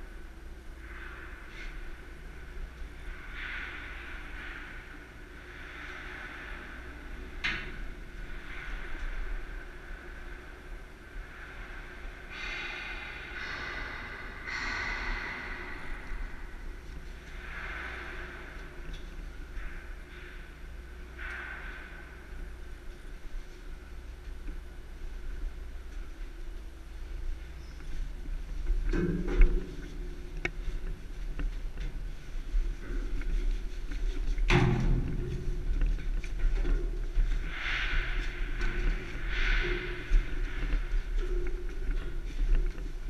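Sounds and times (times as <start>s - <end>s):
low rumble: 0.0s - 43.0s
steady low hum: 0.0s - 43.0s
person breathing close: 12.3s - 18.8s
boots clanking on steel ladder: 32.6s - 43.0s.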